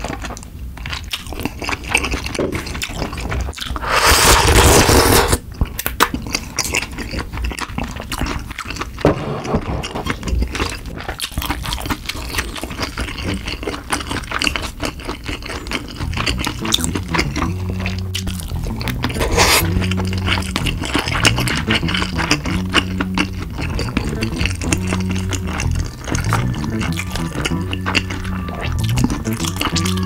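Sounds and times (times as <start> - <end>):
wet chewing with mouth clicks: 0.0 - 3.9, 5.4 - 30.0
slurping noodles: 2.6 - 5.5, 8.9 - 30.0.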